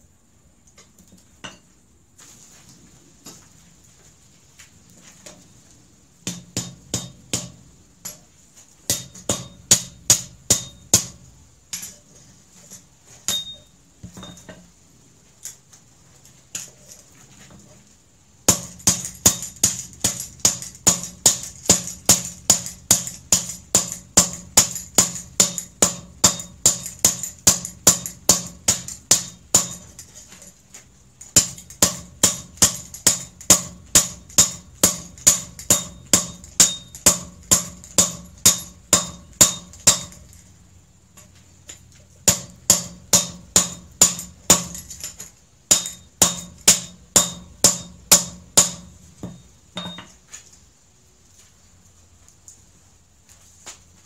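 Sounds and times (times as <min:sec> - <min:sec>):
hammer ringing on hot steel: 0:06.3 - 0:08.2, 0:08.9 - 0:12.0, 0:13.3 - 0:14.5, 0:18.5 - 0:30.0, 0:31.4 - 0:40.4, 0:42.3 - 0:50.2.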